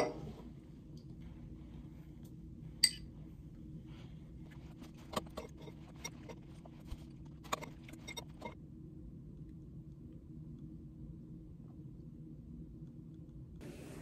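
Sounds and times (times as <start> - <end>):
low steady hum: 0.0 - 14.0
metal spoon clinking on glass: 2.8 - 3.0.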